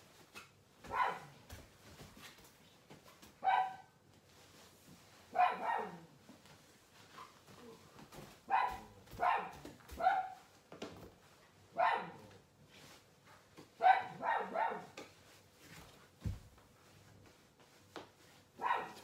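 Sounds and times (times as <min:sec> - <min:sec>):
dog barking: 0:00.9 - 0:01.4, 0:03.4 - 0:03.9, 0:05.3 - 0:06.1, 0:08.5 - 0:10.5, 0:11.7 - 0:12.3, 0:13.8 - 0:15.0, 0:18.6 - 0:19.0.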